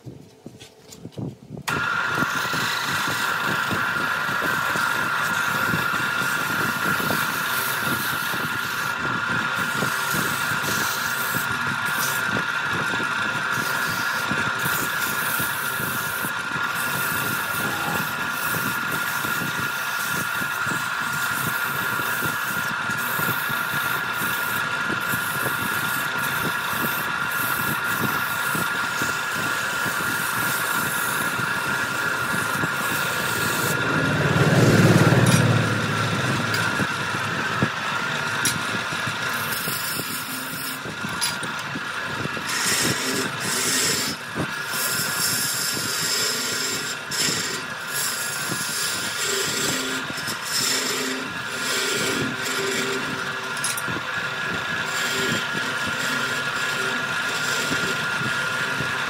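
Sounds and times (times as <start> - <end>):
wood lathe motor whine: 0.0 - 59.0
steady rushing noise: 24.4 - 43.0.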